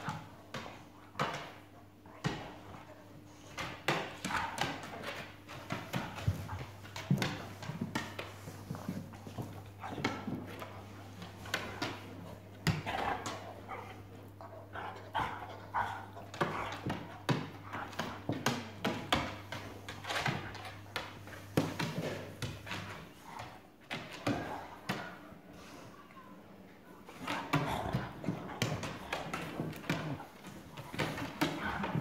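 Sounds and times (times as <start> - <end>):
dog claws scrabbling on wood floor: 27.1 - 32.0.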